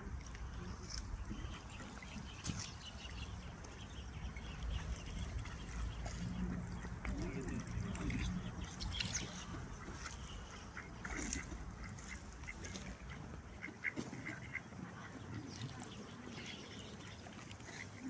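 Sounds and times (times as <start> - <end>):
ducks quacking: 4.4 - 18.0.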